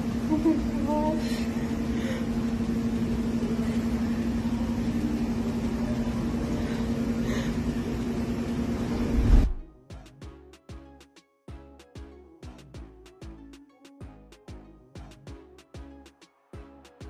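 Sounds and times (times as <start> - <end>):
low mechanical hum: 0.0 - 10.4.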